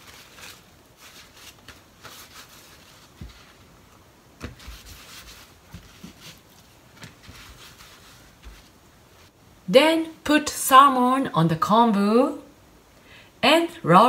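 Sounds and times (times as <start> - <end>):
paper towel rubbing kelp: 0.0 - 9.3.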